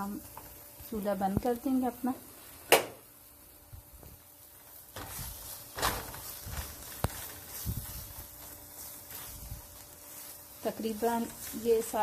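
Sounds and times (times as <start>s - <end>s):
spatula scraping in a pan: 4.7s - 12.0s.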